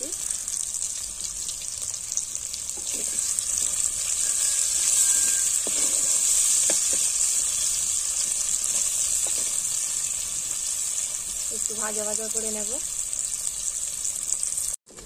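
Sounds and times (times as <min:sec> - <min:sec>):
onion sizzling in hot oil: 0:00.0 - 0:15.0
wooden spatula scraping: 0:02.7 - 0:11.4.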